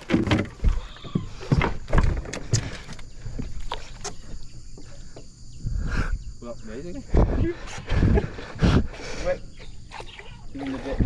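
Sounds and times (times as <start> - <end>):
knocks and thumps on a boat: 0.0 - 5.3.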